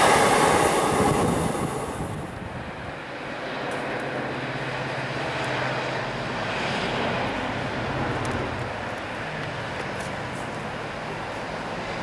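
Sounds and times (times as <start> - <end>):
locomotive engine humming: 0.0 - 3.2
rumble of freight wagons: 0.0 - 12.0.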